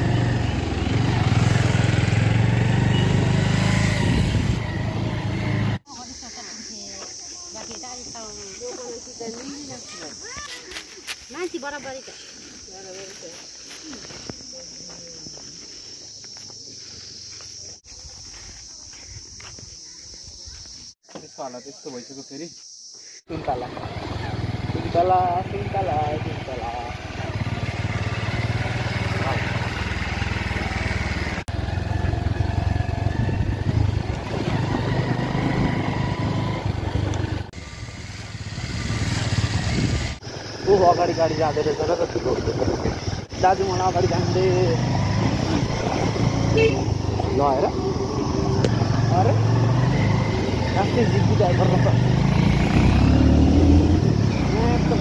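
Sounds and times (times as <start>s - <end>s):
road and wind noise: 0.0s - 5.9s, 23.5s - 55.0s
motorcycle engine running: 0.0s - 6.3s, 23.3s - 55.0s
insects droning: 0.0s - 55.0s.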